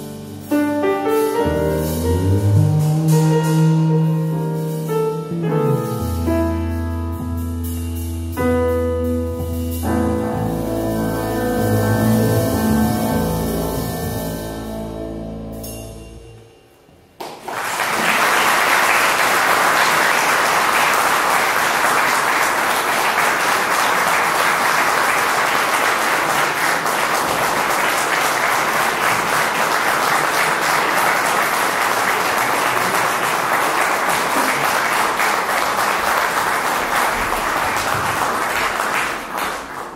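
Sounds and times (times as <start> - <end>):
audience applauding: 17.2 - 39.9.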